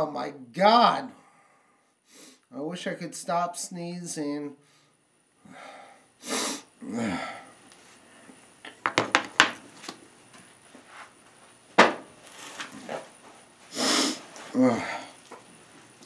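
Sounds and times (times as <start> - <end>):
man sniffing: 5.6 - 7.5, 13.7 - 15.2
man sneezing: 6.2 - 7.5, 13.7 - 15.2
objects clicking and knocking: 8.7 - 9.6.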